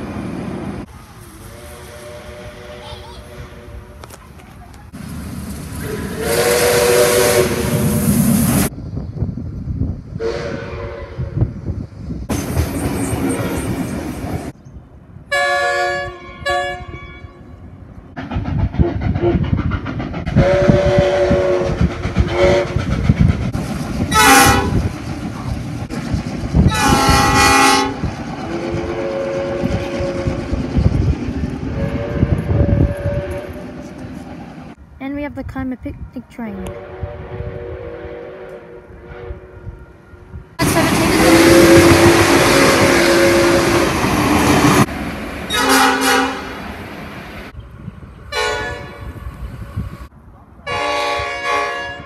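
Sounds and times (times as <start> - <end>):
train rumble and clatter: 0.0 - 15.3, 17.6 - 52.0
train horn blasts: 1.5 - 3.9, 5.8 - 8.0, 10.2 - 11.4, 15.3 - 17.7, 20.4 - 22.8, 24.1 - 24.8, 26.7 - 28.0, 28.6 - 30.4, 31.7 - 33.8, 36.7 - 40.0, 40.6 - 44.0, 45.5 - 46.6, 48.3 - 49.1, 50.6 - 52.0.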